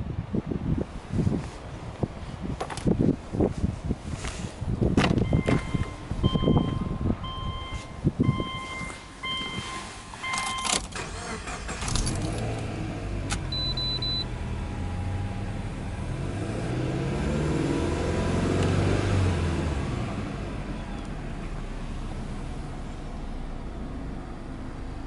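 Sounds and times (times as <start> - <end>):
car engine idling and revving: 2.8 - 25.0
car warning chime: 5.2 - 10.8, 13.5 - 14.3.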